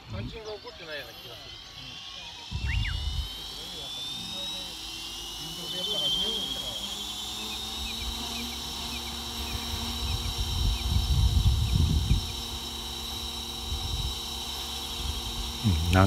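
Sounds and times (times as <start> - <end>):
low rotor hum: 0.0 - 16.0
rc helicopter motor whine: 0.0 - 16.0
low rumbling: 7.8 - 16.0.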